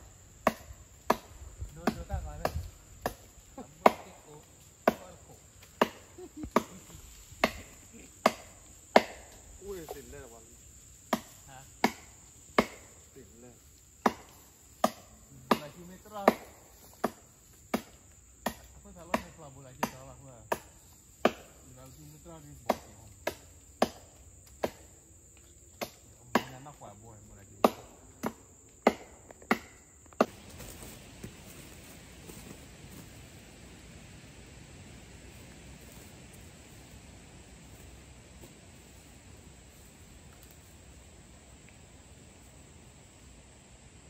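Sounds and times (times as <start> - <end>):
high insect drone: 0.0 - 44.0
chopping strikes on wood: 0.4 - 10.0, 11.1 - 13.0, 14.0 - 21.6, 22.6 - 24.9, 25.8 - 26.7, 27.6 - 30.4.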